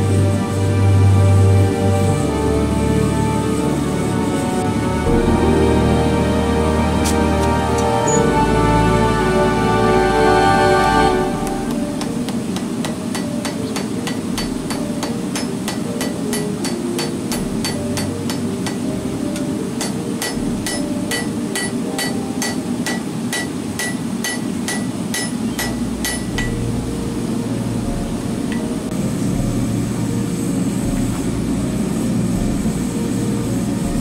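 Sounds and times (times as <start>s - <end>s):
hammer striking hot metal on anvil: 11.4s - 26.6s.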